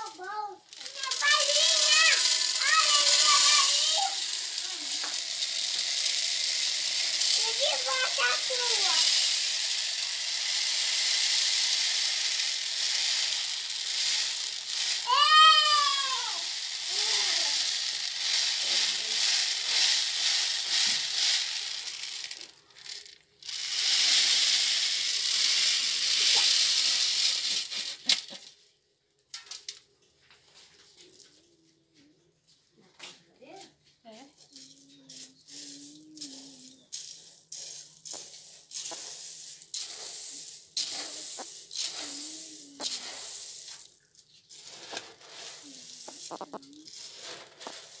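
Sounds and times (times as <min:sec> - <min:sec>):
coffee beans pouring into metal pan: 0:00.0 - 0:31.4, 0:34.5 - 0:48.0.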